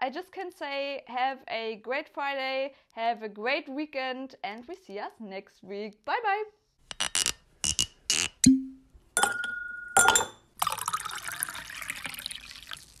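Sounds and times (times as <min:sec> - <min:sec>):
glass knock: 0:08.4 - 0:10.4
glasses clinking: 0:08.4 - 0:12.2
liquid pouring: 0:09.2 - 0:13.0.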